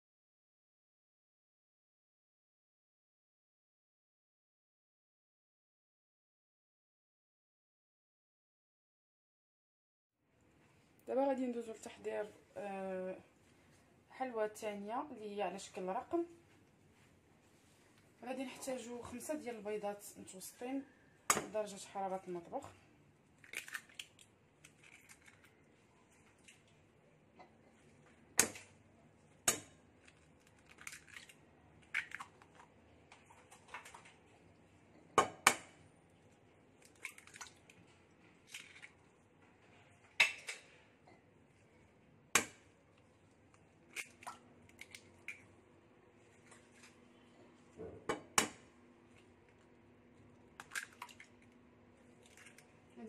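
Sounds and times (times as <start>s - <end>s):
eggs cracking on glass bowl: 23.4s - 25.6s, 29.4s - 34.1s, 36.8s - 37.8s, 43.8s - 45.5s, 50.5s - 51.5s.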